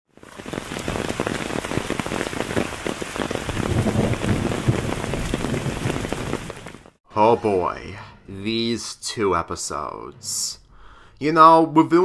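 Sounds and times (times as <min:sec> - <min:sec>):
rain patter: 0:00.1 - 0:07.0.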